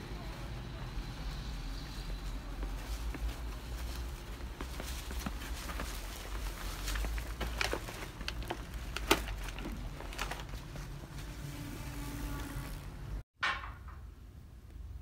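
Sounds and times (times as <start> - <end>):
footsteps in snow: 0.5 - 8.3.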